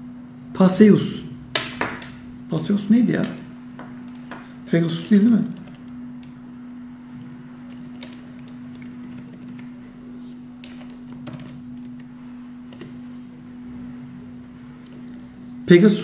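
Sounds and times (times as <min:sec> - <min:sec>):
steady low hum: 0:00.0 - 0:16.0
keyboard typing clicks: 0:07.7 - 0:09.8.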